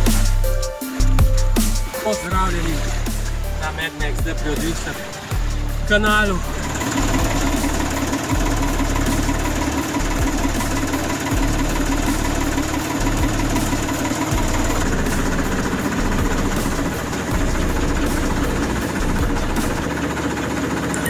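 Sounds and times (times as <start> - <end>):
tractor diesel engine running: 0.0 - 21.0.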